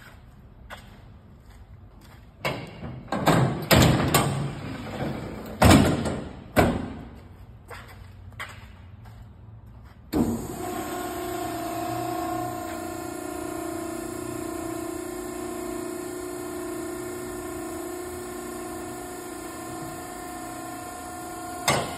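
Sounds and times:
electric motor humming: 10.2 - 21.9.

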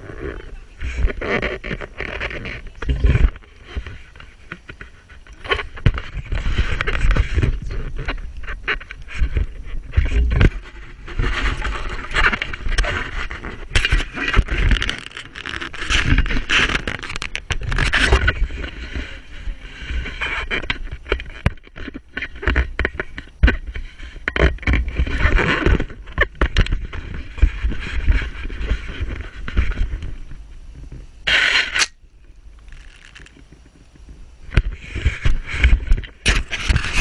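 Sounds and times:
camera housing rubbing and scraping: 0.0 - 30.4, 31.2 - 32.0, 34.5 - 37.0
low buffeting rumble: 23.3 - 36.3.

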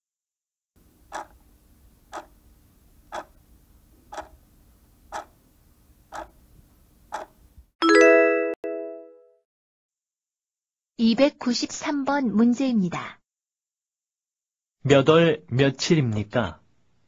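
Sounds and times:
clock ticking: 1.1 - 1.4, 2.1 - 2.4, 3.1 - 3.4, 4.1 - 4.4, 5.1 - 5.4, 6.1 - 6.4, 7.1 - 7.4.

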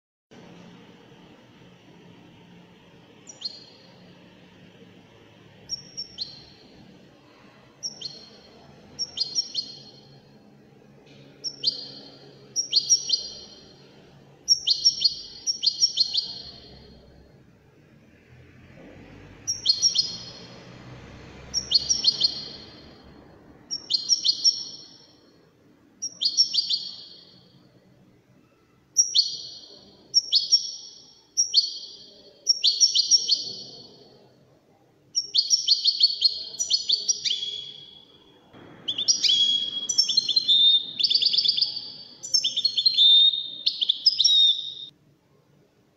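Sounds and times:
goldfinch singing: 3.3 - 3.9, 5.7 - 6.7, 7.8 - 10.2, 11.4 - 13.8, 14.5 - 17.0, 19.5 - 20.6, 21.4 - 23.0, 23.7 - 25.1, 26.0 - 27.4, 29.0 - 34.1, 35.2 - 38.0, 38.9 - 44.9.

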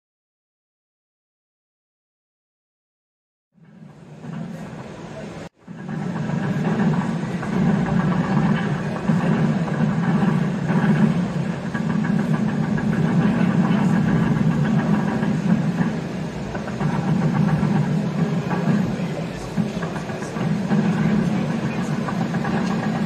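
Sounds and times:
model locomotive chugging: 3.6 - 23.0.

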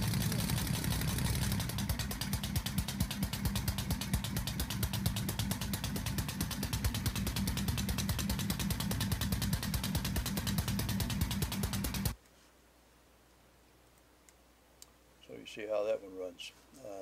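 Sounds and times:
compressed-air engine clatter: 0.0 - 12.2.

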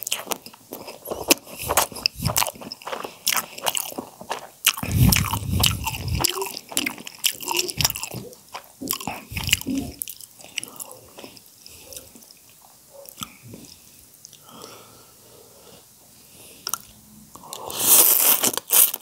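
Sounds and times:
wet chewing and lip smacking: 0.0 - 14.4
noodle slurp: 0.9 - 11.2
mouth clicks: 1.1 - 11.3, 16.6 - 17.7.

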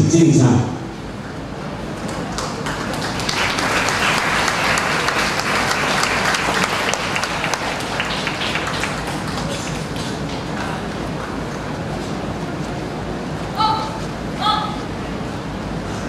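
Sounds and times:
audience applauding: 1.9 - 11.6.

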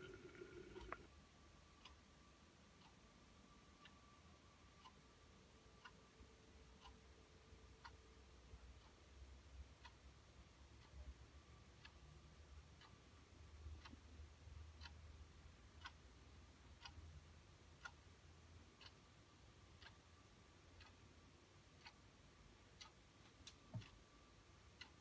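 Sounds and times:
low hum: 0.0 - 1.1
clock ticking: 0.0 - 25.0.

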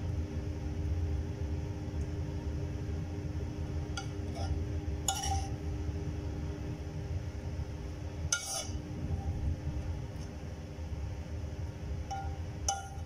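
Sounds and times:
low hum: 0.0 - 13.0
metal spoon clinking on pan: 5.1 - 5.5, 8.4 - 8.8, 12.1 - 13.0.

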